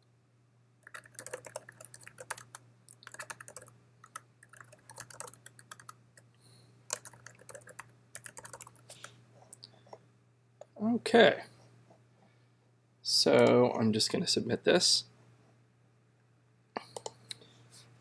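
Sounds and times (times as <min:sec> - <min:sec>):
faint low hum: 0:00.0 - 0:18.0
keyboard typing clicks: 0:00.8 - 0:06.0, 0:06.9 - 0:08.8, 0:16.9 - 0:17.2.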